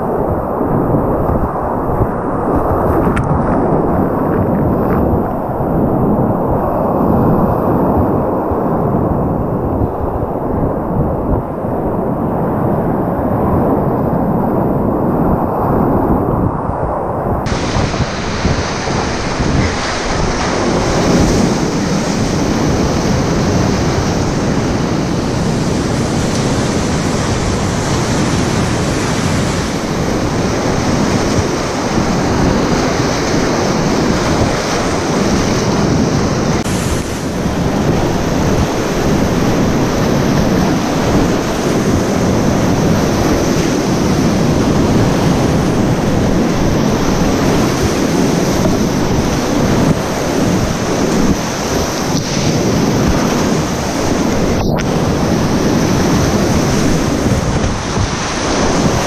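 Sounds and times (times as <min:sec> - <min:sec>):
whitewater rapids rushing: 0:17.4 - 0:59.0.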